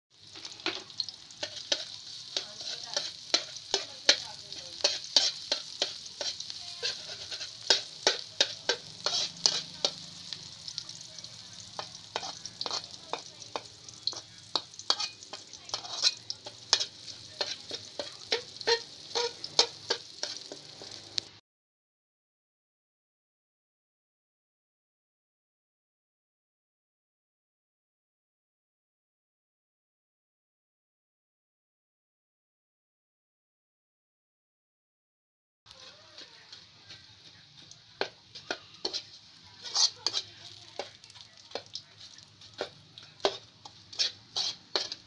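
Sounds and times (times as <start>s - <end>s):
garlic sizzling in hot oil: 0.1s - 21.4s, 35.7s - 45.0s
metal spatula scraping a wok: 0.3s - 21.3s, 35.7s - 45.0s.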